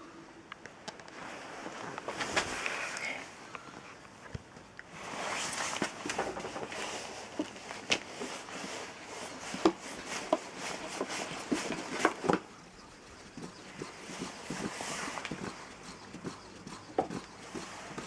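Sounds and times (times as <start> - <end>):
potter's wheel whirring: 6.0 - 18.0.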